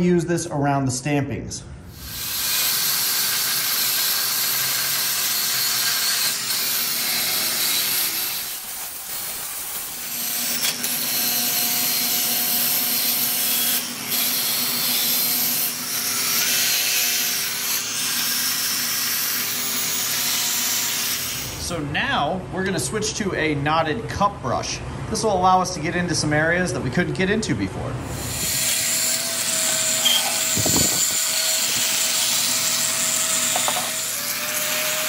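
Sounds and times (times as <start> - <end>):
angle grinder motor whine: 28.1 - 35.0.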